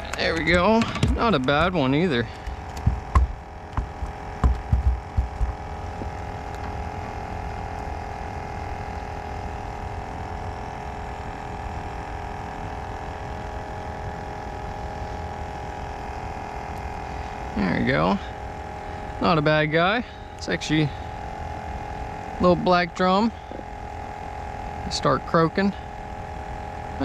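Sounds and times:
fish croaking hum: 0:00.0 - 0:27.0
dull knocks of fish handling: 0:02.7 - 0:05.6.

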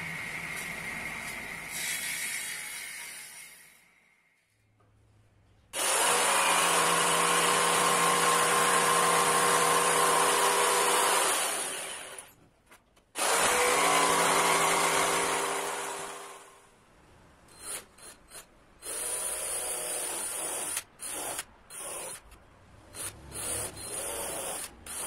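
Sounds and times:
jigsaw cutting wood: 0:05.8 - 0:12.3, 0:13.2 - 0:16.5.

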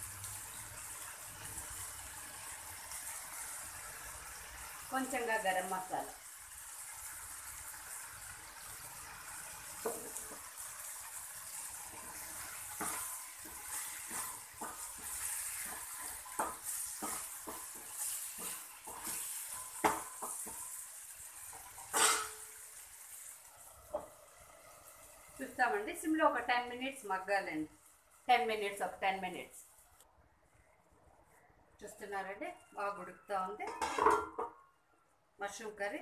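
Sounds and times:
curry sizzling in pan: 0:00.0 - 0:30.0
wooden spatula scraping pan: 0:11.9 - 0:20.8
steel lid clanking on pan: 0:21.5 - 0:22.6, 0:33.6 - 0:34.6.

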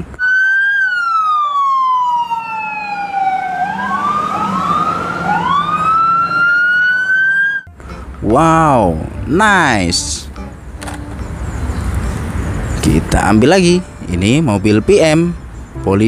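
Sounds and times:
police sirens wailing: 0:00.0 - 0:07.7.

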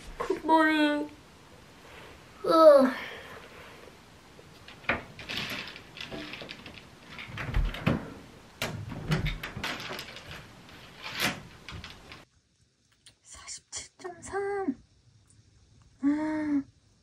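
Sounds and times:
curtain fabric rustling: 0:03.2 - 0:12.2
curtain runners sliding: 0:03.5 - 0:12.2
sharp clicks and knocks: 0:04.6 - 0:12.3.

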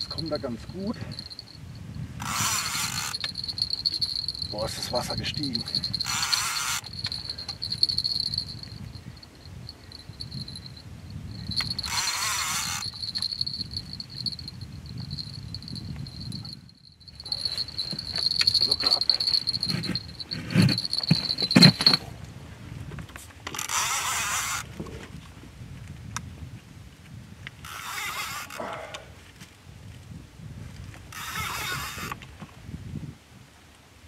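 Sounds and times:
insects chirring: 0:00.0 - 0:22.1.

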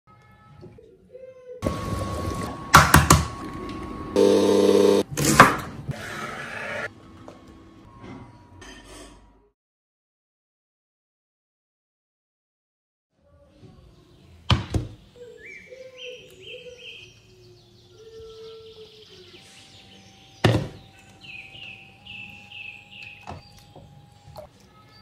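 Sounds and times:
small birds chirping: 0:13.3 - 0:25.0.

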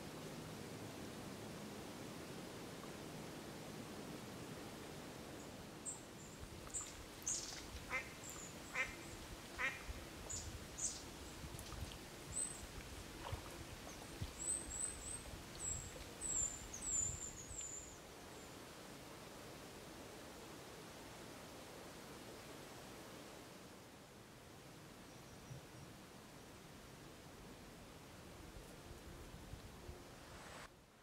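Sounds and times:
duck quacking: 0:08.7 - 0:09.0, 0:09.6 - 0:09.8.

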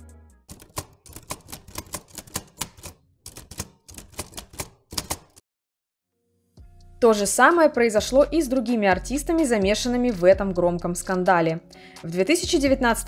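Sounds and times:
typewriter key strikes: 0:00.5 - 0:05.4.

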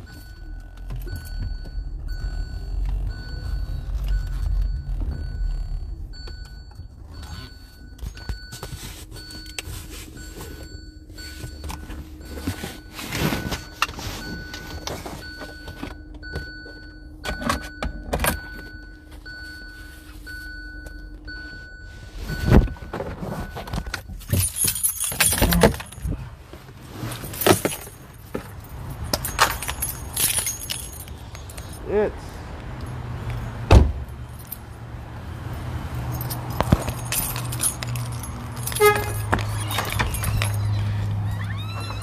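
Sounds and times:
short beeps: 0:00.0 - 0:24.2
keys jangling: 0:24.0 - 0:26.2, 0:27.1 - 0:32.0, 0:36.0 - 0:42.0
loud thump: 0:33.7 - 0:34.0.

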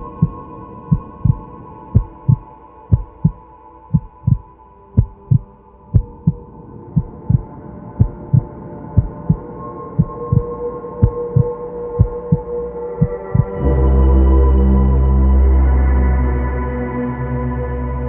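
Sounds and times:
heartbeat thumps: 0:00.0 - 0:01.4, 0:02.0 - 0:06.4, 0:07.0 - 0:09.4, 0:10.0 - 0:13.6.

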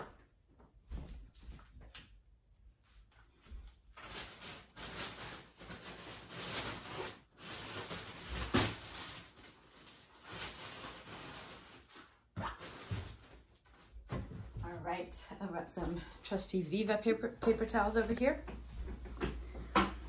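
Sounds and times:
rustling and rummaging: 0:03.4 - 0:15.0.

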